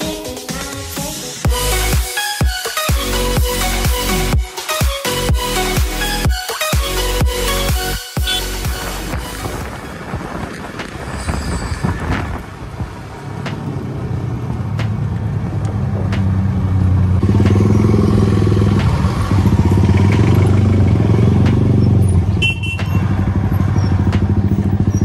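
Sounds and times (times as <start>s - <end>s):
motorcycle engine running: 8.2s - 11.0s, 13.5s - 25.0s.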